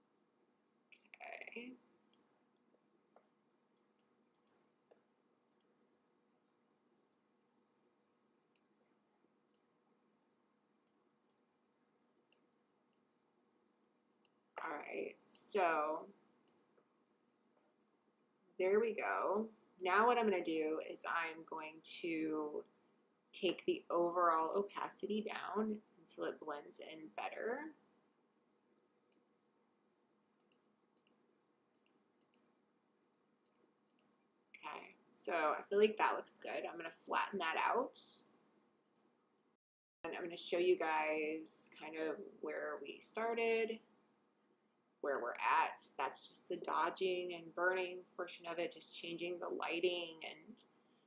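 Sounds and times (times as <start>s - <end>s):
faint computer mouse clicks: 30.4s - 32.5s, 33.4s - 34.1s.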